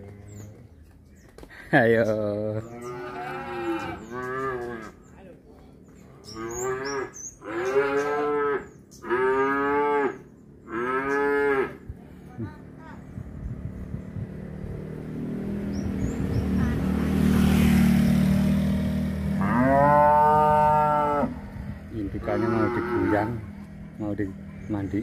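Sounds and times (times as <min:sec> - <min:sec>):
cattle mooing: 0:02.6 - 0:05.0, 0:06.3 - 0:11.9, 0:19.4 - 0:21.5, 0:22.1 - 0:23.6.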